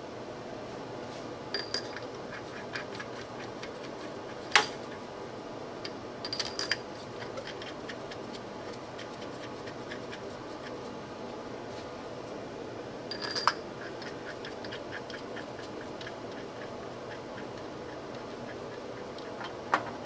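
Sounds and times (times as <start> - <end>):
metal tools clinking: 1.6 - 2.1, 6.3 - 6.9, 13.1 - 13.7.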